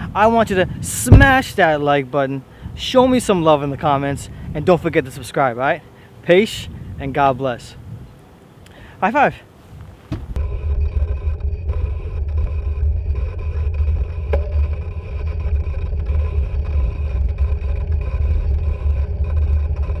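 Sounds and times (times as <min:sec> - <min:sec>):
steady low rumble: 0:00.0 - 0:05.5, 0:09.8 - 0:20.0.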